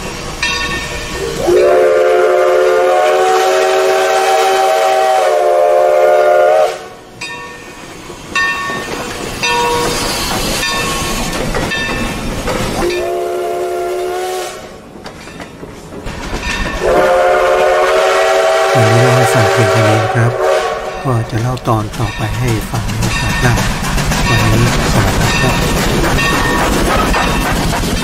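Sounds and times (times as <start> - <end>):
train cars rolling clickety-clack: 0.0 - 5.1, 7.0 - 20.1, 20.8 - 28.0
steam locomotive chime whistle: 0.0 - 7.8, 12.8 - 14.7, 16.8 - 21.2.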